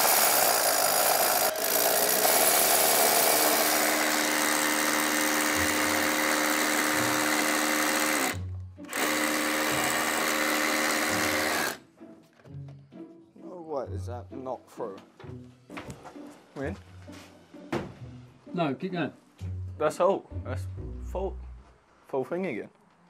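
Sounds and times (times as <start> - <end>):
cordless drill boring: 0.0 - 11.8
background music with steady beat: 4.6 - 21.9.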